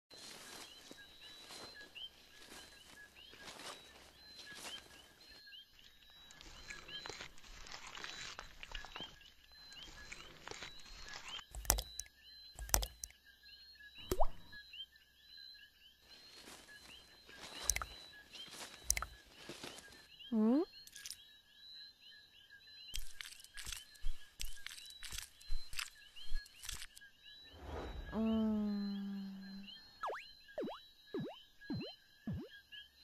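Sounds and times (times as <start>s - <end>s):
water drops hitting: 14.1s - 14.4s
short bird chirps: 16.8s - 19.2s, 22.9s - 32.6s.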